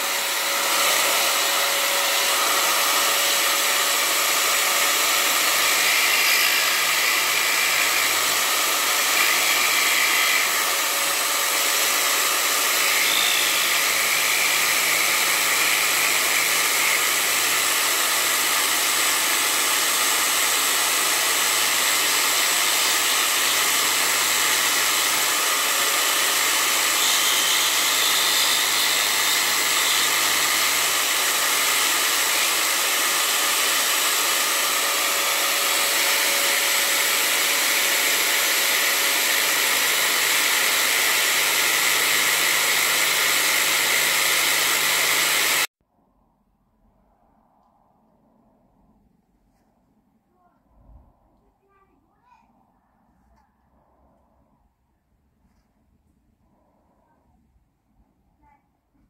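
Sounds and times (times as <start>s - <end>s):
burr grinding into wood: 0.0s - 45.7s
drill motor whine: 0.0s - 45.7s.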